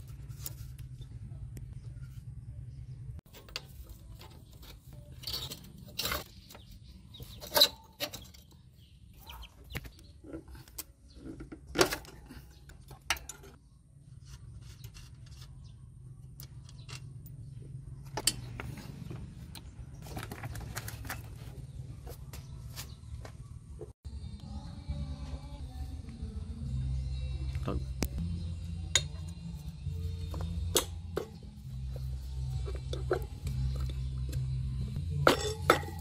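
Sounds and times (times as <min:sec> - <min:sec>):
spanner clinking on metal: 0:35.1 - 0:36.0.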